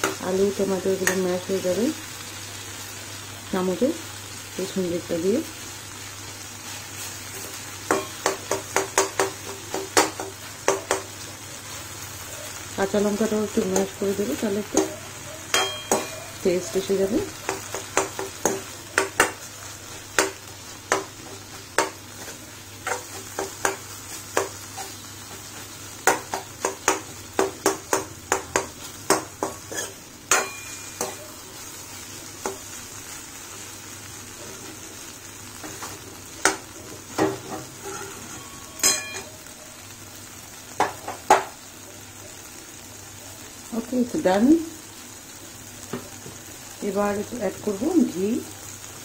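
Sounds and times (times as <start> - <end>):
steady sizzle: 0.0 - 49.0
metal spatula scraping a pan: 28.8 - 32.6, 36.8 - 39.3.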